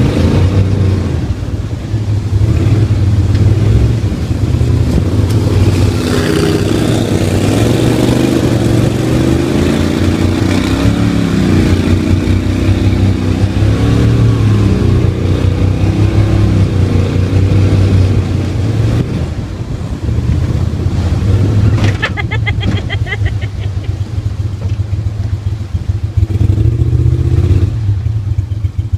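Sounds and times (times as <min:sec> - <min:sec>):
boat motor running hard: 0:00.0 - 0:19.8.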